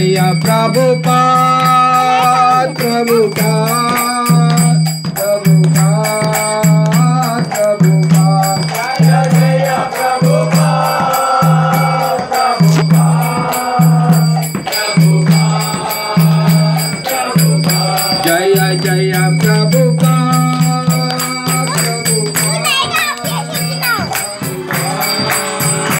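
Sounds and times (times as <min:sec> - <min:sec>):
jingling percussion: 0:00.0 - 0:25.9
group chanting: 0:01.4 - 0:02.8, 0:08.2 - 0:25.9.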